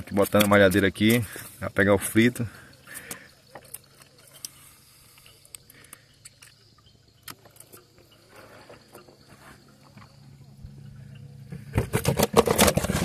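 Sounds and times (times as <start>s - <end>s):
gill net clicks and knocks: 0.0s - 1.3s, 11.6s - 13.0s
low steady hum: 0.0s - 13.0s.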